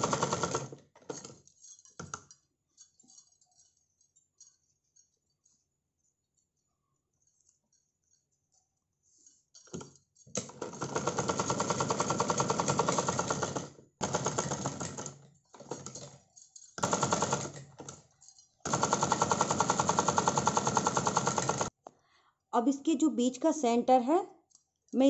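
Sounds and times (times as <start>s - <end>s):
sewing machine clattering: 0.0s - 2.3s, 9.6s - 21.7s.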